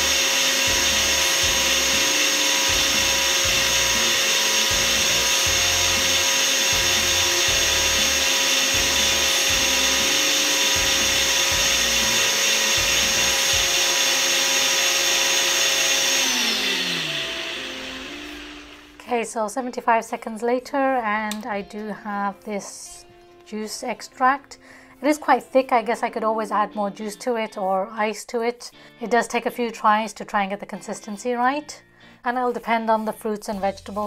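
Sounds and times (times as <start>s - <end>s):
blender motor whine: 0.0s - 19.0s.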